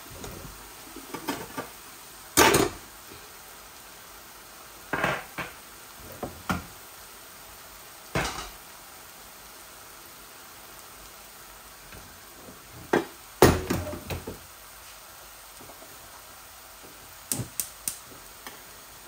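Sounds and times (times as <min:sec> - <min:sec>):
frying sizzle: 0:00.0 - 0:19.0
metal pans clattering: 0:02.4 - 0:02.8, 0:08.2 - 0:08.6.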